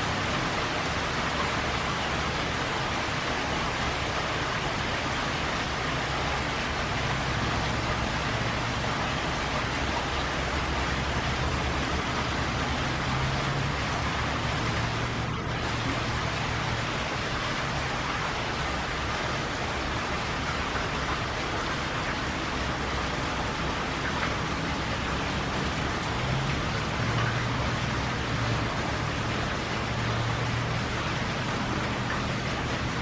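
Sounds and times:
heavy rain: 0.0s - 33.0s
rainwater gushing from downspout: 0.0s - 33.0s.

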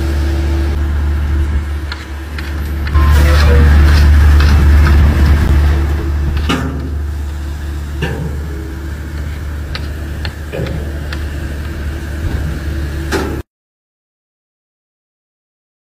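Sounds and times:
heavy diesel engine rumbling: 0.0s - 13.4s
short clanks and knocks: 8.0s - 8.6s, 9.8s - 11.2s.

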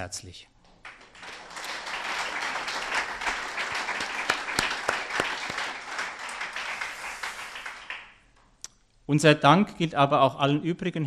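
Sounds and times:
audience applauding: 0.7s - 8.4s
single sharp claps: 0.8s - 8.2s.

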